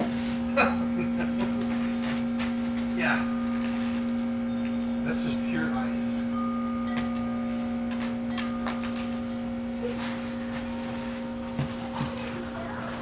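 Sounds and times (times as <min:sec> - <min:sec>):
low steady hum: 0:00.0 - 0:13.0
faint higher tone: 0:03.0 - 0:13.0.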